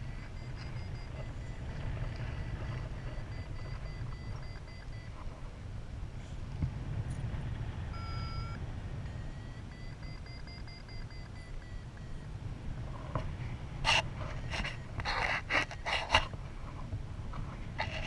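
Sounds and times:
variometer beeping: 0:00.0 - 0:05.2, 0:07.9 - 0:12.4, 0:13.8 - 0:16.3
wind rumble on microphone: 0:00.0 - 0:18.0.

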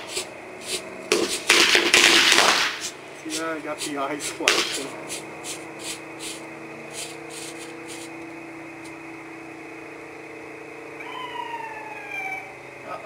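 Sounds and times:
steady low hum: 0:00.0 - 0:13.0
firecrackers popping and crackling: 0:01.1 - 0:03.4, 0:04.3 - 0:04.9.

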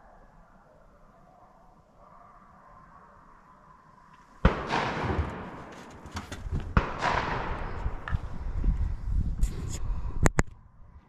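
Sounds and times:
shotgun shots with echo: 0:04.4 - 0:08.1.

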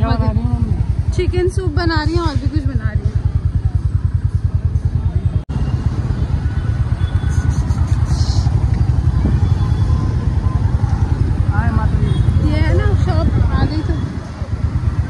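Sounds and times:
motorbike engine rumble: 0:00.0 - 0:15.0
street traffic: 0:00.0 - 0:15.0.

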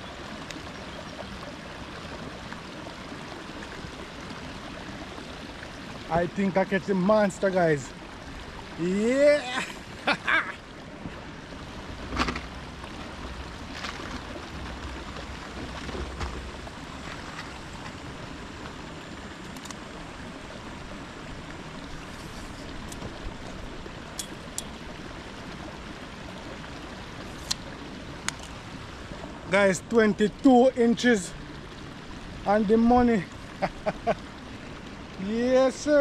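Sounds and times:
flowing water rushing: 0:00.0 - 0:36.0.

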